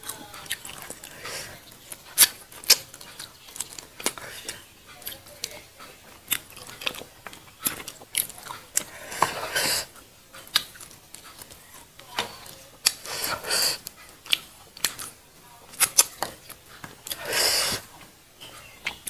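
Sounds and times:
mouth clicks and smacks: 0.0s - 11.6s, 12.2s - 19.0s
person chewing: 0.0s - 19.0s
crunchy hissing bursts: 13.0s - 13.8s, 17.2s - 17.9s.

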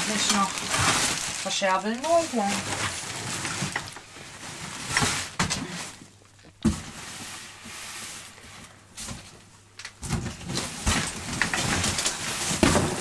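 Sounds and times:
plastic sacks and boxes rustling: 0.0s - 13.0s.

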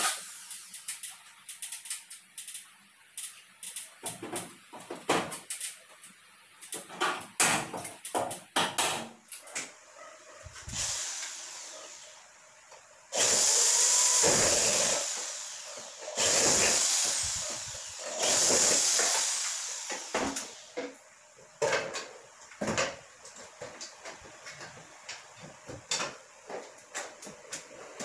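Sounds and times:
electric drill on metal frame: 10.7s - 12.1s, 13.1s - 20.8s.

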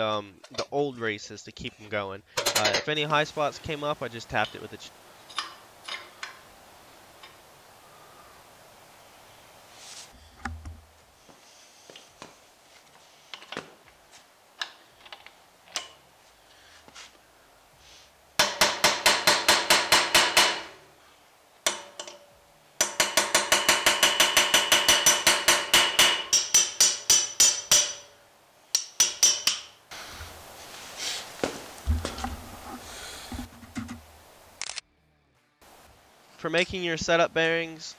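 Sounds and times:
hammer tapping metal: 18.4s - 20.8s, 21.7s - 29.8s.

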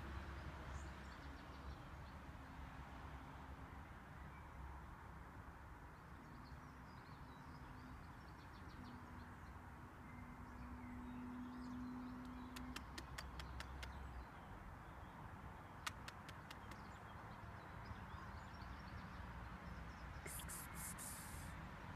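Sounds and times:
sharp clicks: 15.9s - 16.9s.

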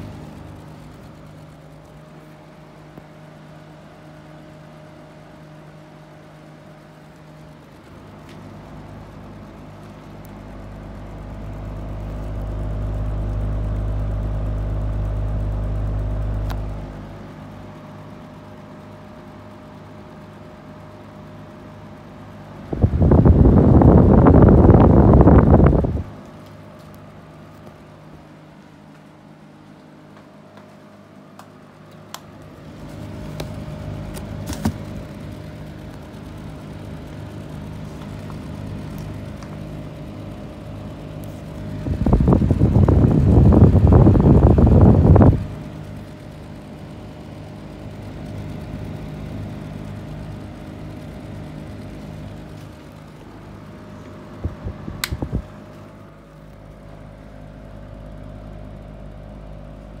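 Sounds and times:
exhaust fans humming: 0.0s - 60.0s
air blowing over microphone: 22.7s - 26.1s, 41.7s - 45.6s.

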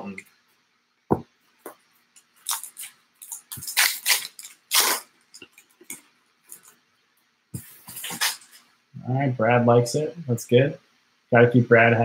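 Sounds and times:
card pack wrapper tearing: 2.4s - 5.1s.

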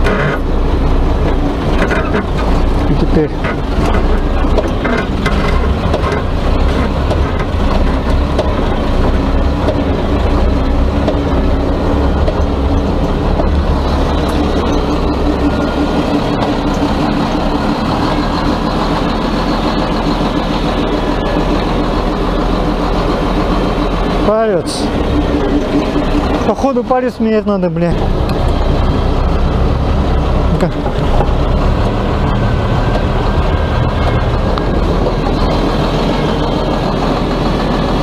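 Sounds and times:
diesel engine running under load: 0.0s - 38.0s
steady higher tone: 8.7s - 30.8s.

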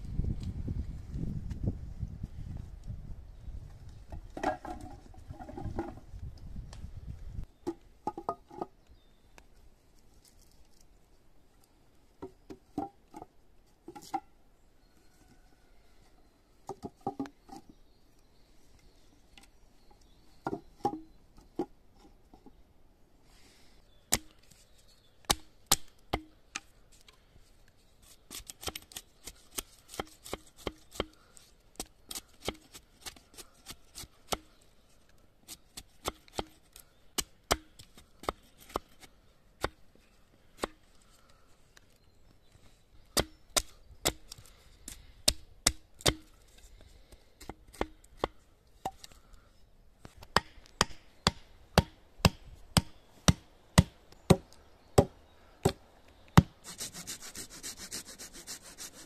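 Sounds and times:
hatchet chopping wood: 24.1s - 24.4s, 25.3s - 26.4s, 37.2s - 38.9s, 43.2s - 44.3s, 45.3s - 46.3s, 47.4s - 49.0s, 50.2s - 55.8s, 56.4s - 56.6s.

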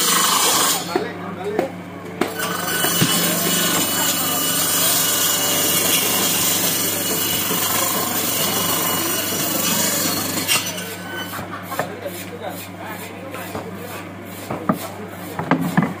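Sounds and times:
saw blade cutting bone: 0.0s - 1.0s, 2.2s - 11.4s.

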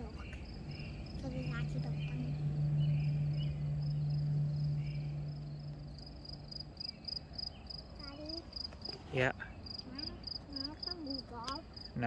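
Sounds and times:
high repeating chirp: 0.0s - 8.4s
steady low hum: 0.0s - 12.0s.

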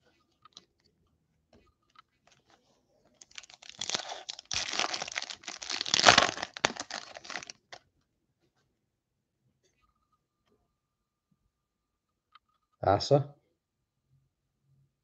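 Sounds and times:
foil wrapper crinkling and tearing: 3.2s - 7.8s.

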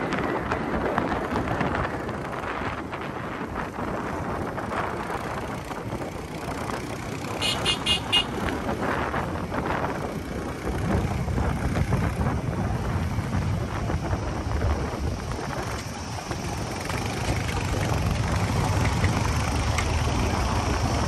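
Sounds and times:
wind on microphone: 0.0s - 21.0s
motorcycle engine: 0.2s - 21.0s
high horn beeps: 7.4s - 8.4s.

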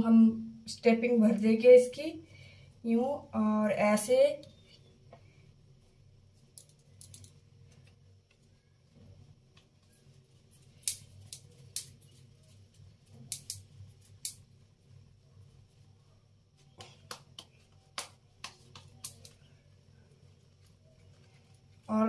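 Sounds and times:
hands shaping dough: 4.3s - 22.0s
small clicks: 6.5s - 8.5s.

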